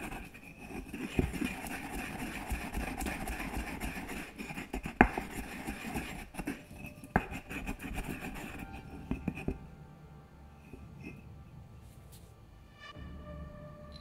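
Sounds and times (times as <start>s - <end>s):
pestle grinding in mortar: 0.0s - 9.6s.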